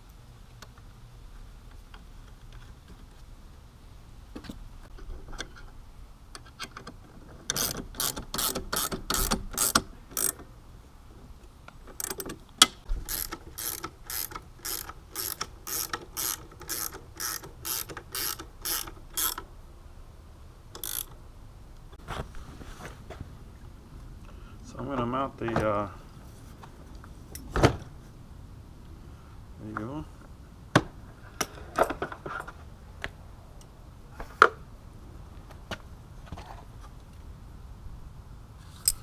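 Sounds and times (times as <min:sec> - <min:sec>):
ratchet wrench clicking: 0:07.5 - 0:10.4, 0:13.0 - 0:19.5, 0:20.7 - 0:21.2.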